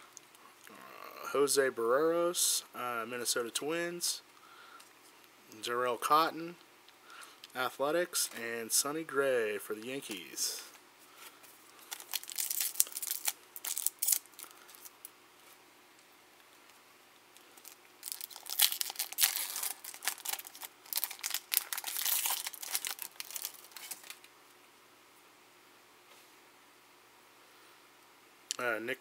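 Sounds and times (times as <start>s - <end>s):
foil wrapper crinkling and tearing: 11.8s - 14.9s, 17.6s - 24.3s.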